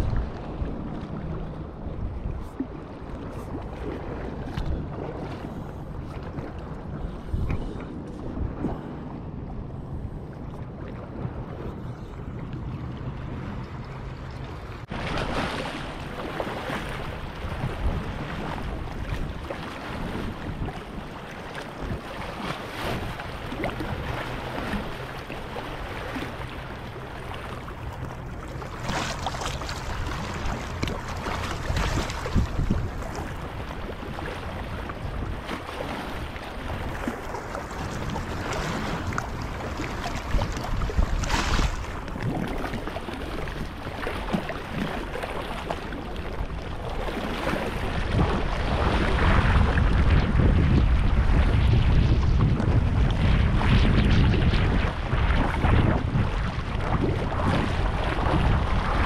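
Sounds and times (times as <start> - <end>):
wind buffeting microphone: 0.0 - 59.0
water lapping on rocks: 11.1 - 51.4.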